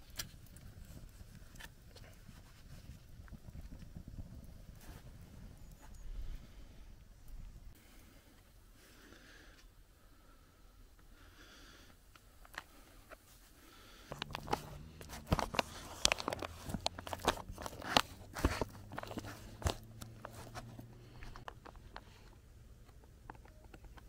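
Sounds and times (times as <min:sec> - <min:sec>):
metal utensil scraping pouch: 0:14.1 - 0:21.8.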